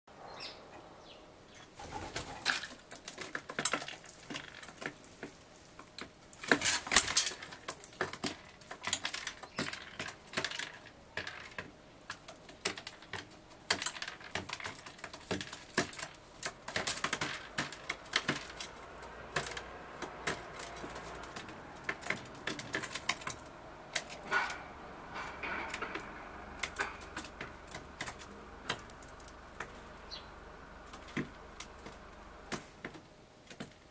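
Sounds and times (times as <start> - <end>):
bird wingbeats: 1.8 - 2.6
beak pecking on wood: 1.8 - 33.8.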